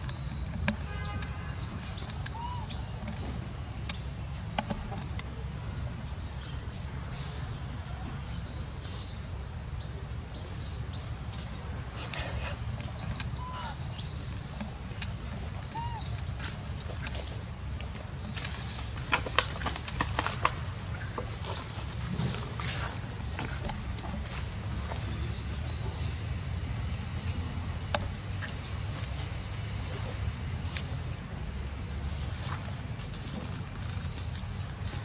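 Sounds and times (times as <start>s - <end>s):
insects buzzing: 0.0s - 35.0s
bird chirps: 15.6s - 17.4s.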